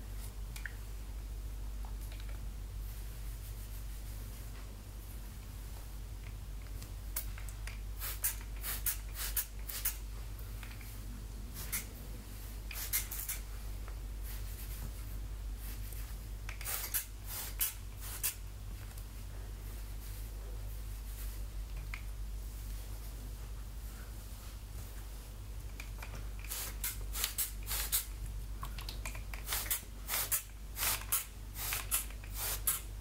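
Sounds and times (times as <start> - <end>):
spray bottle spritzing: 8.0 - 10.0, 11.6 - 11.9, 12.7 - 13.4, 16.5 - 18.4, 26.4 - 28.1, 29.3 - 32.9.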